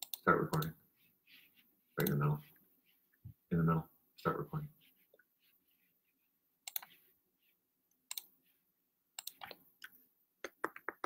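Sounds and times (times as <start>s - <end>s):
computer mouse clicks: 0.0s - 0.8s, 2.0s - 2.2s, 6.6s - 7.0s, 7.9s - 8.3s, 9.2s - 10.0s.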